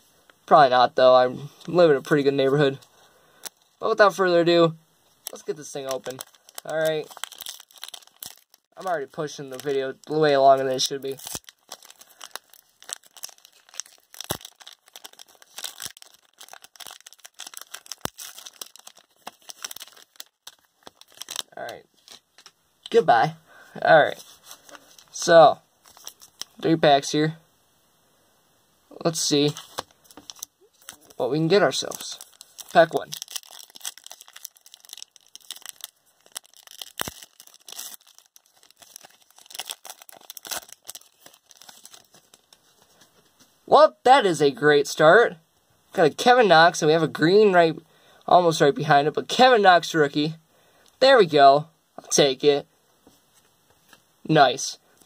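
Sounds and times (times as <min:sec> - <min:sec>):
wrapper crinkling and tearing: 0:05.2 - 0:22.6, 0:25.8 - 0:26.6, 0:29.4 - 0:43.1.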